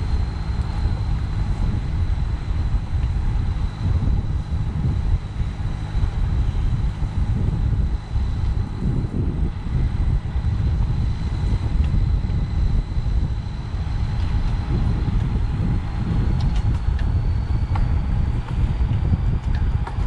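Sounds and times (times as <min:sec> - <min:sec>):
faint high whine: 0:00.0 - 0:20.0
wind buffeting microphone: 0:00.0 - 0:20.0.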